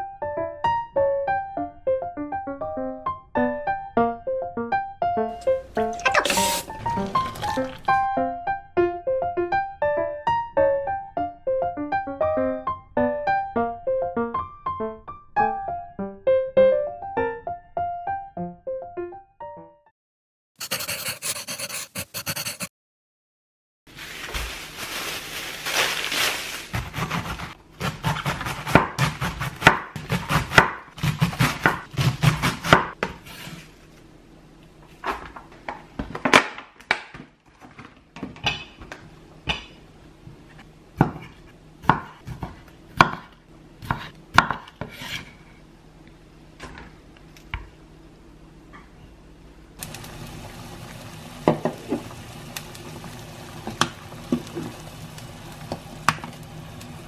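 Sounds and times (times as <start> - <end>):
knife chopping on cutting board: 26.8 - 33.4, 41.0 - 45.4.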